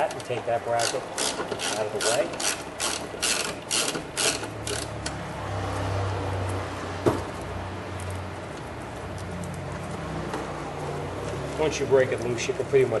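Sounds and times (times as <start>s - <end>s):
ratchet wrench clicking: 0.7s - 5.1s.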